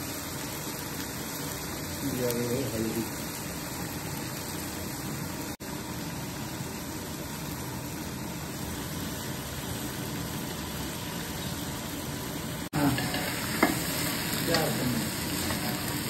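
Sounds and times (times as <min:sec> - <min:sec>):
gas burner roaring: 0:00.0 - 0:16.0
meat frying in oil: 0:00.0 - 0:16.0.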